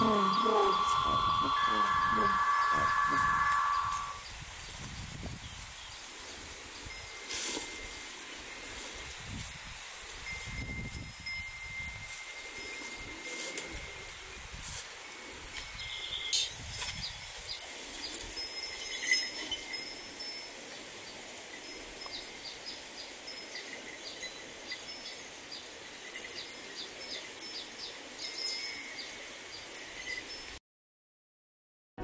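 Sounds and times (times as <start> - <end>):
small birds chirping: 0.0 - 4.2
steady hiss: 0.0 - 11.4.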